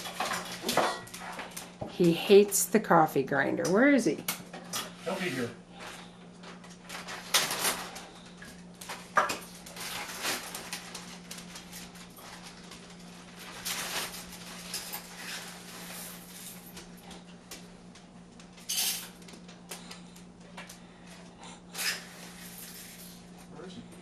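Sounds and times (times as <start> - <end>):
rustling: 8.9 - 16.8.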